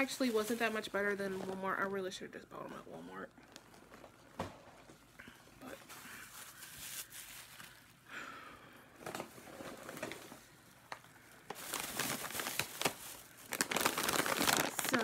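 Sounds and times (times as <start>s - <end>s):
plastic bag crinkling: 0.0s - 2.2s, 3.1s - 4.9s, 5.6s - 8.1s, 9.6s - 15.0s.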